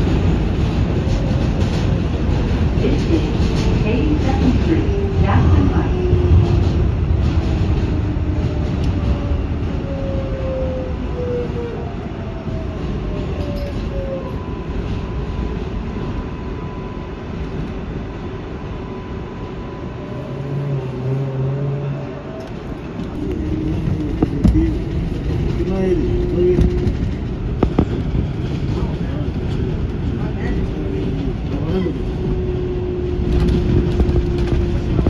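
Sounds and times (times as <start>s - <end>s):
subway wheels rumbling on rail: 0.0s - 35.0s.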